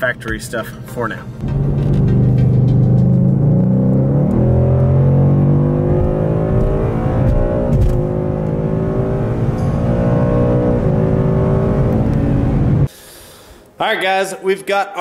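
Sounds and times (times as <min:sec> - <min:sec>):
car engine accelerating hard: 0:01.4 - 0:12.9.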